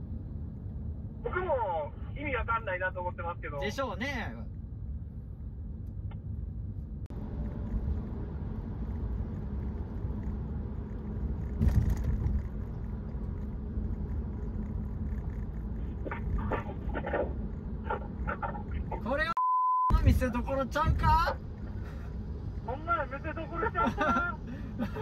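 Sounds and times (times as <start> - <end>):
motorcycle wind and engine rumble: 4.7 - 16.6.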